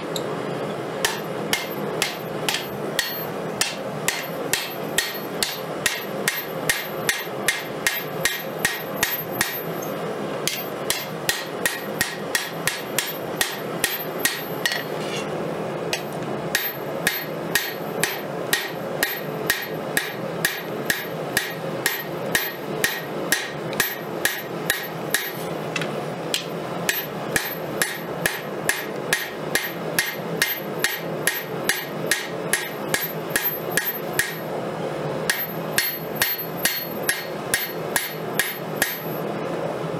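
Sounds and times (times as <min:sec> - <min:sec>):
hammer striking steel on anvil: 0:01.0 - 0:34.5, 0:35.3 - 0:39.2.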